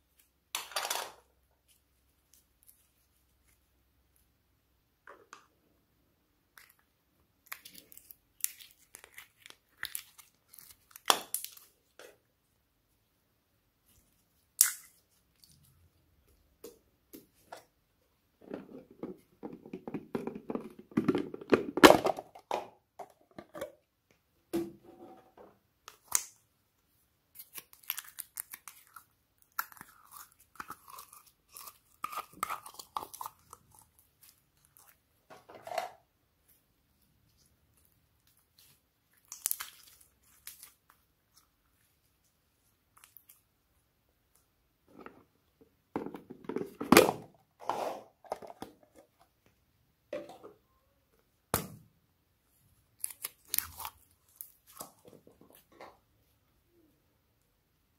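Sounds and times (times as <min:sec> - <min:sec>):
sticky slime crackling: 0:07.4 - 0:11.8, 0:37.7 - 0:43.4, 0:52.9 - 0:55.1.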